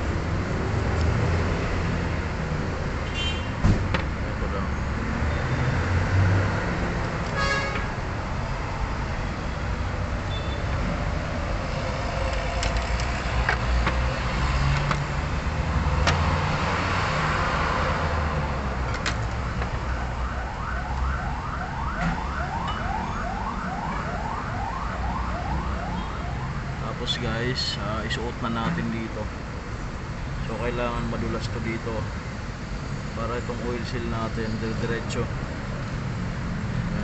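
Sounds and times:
low traffic rumble: 0.0 - 37.0
emergency siren yelping: 19.7 - 26.8.

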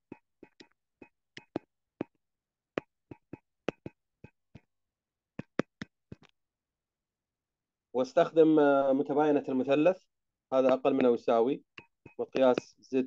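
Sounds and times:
stylus tapping on tablet screen: 0.0 - 2.2, 2.8 - 4.7, 5.4 - 6.3, 10.5 - 12.8.

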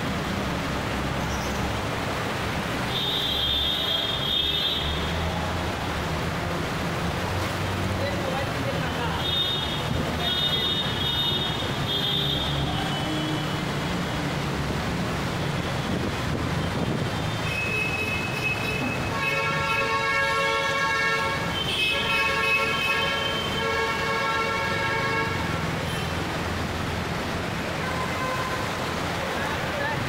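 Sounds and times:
floodwater rushing: 0.0 - 30.0
heavy rain: 0.0 - 30.0
traffic wading through water: 0.0 - 30.0
vehicle horns: 2.9 - 5.1, 9.2 - 13.6, 17.4 - 26.2, 27.7 - 28.8.

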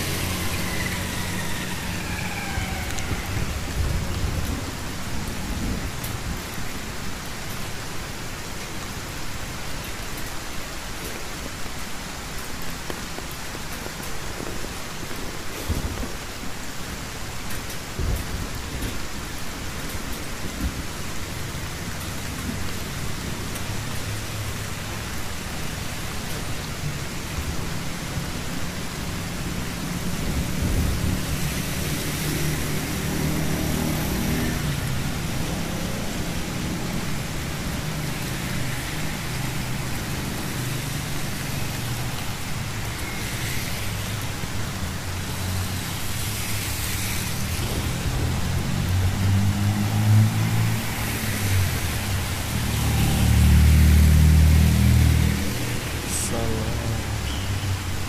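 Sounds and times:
low hum of motor vehicles: 0.0 - 58.0
motorbike passing on wet road: 0.0 - 58.0
rain on a wet street: 0.0 - 58.0.

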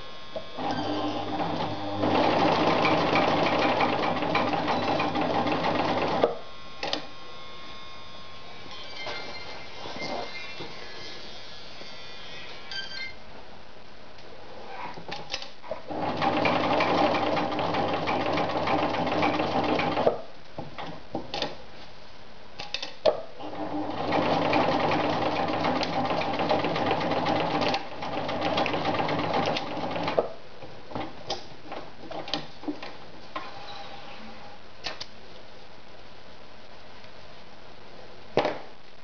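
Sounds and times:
sewing machine stitching: 0.6 - 6.3, 15.7 - 20.2, 23.4 - 30.3.

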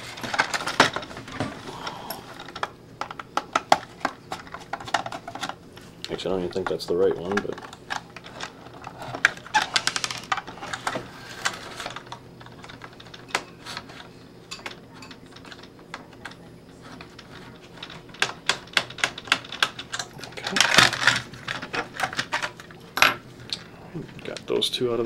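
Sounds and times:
plastic parts knocking: 6.5 - 13.8, 17.0 - 23.2.

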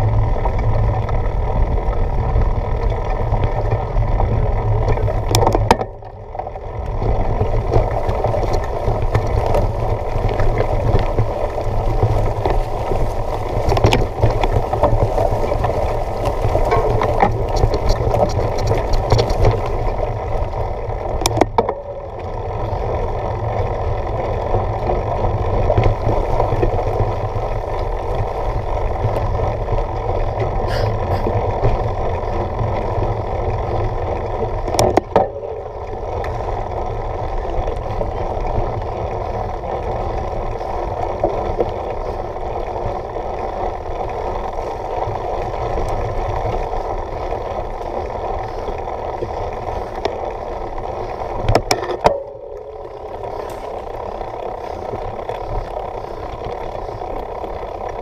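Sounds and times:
bike tyres rumbling on dirt: 0.0 - 58.0.

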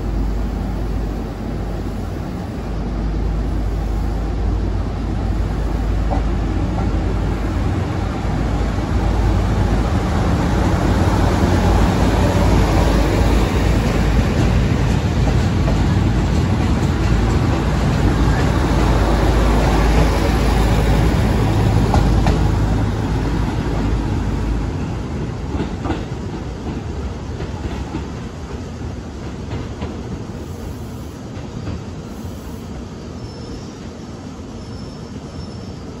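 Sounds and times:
diesel train engine rumbling: 0.0 - 36.0
train wheel clacks: 10.7 - 30.3.

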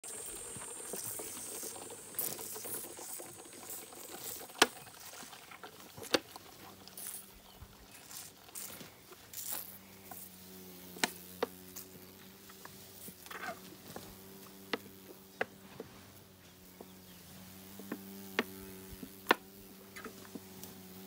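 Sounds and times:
crickets chirping: 0.0 - 5.1
elephant calf sucking from bottle: 0.0 - 10.4.

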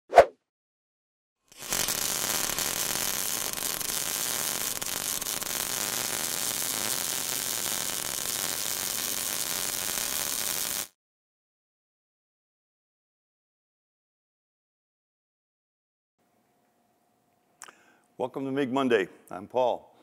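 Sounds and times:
welding arc crackling and hissing: 1.5 - 11.0.

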